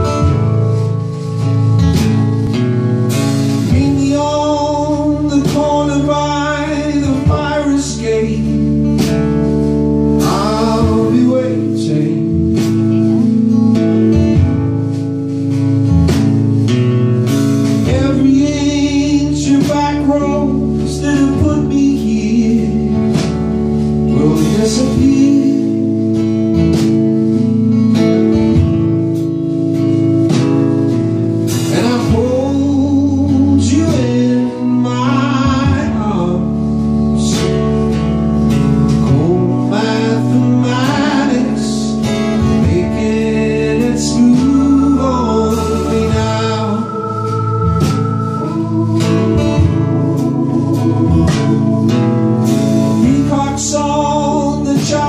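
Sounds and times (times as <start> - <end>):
strummed acoustic guitar: 0.0 - 55.0
man singing: 3.5 - 13.6, 17.6 - 27.4, 31.5 - 38.0, 38.8 - 55.0
steady held note: 43.8 - 54.3.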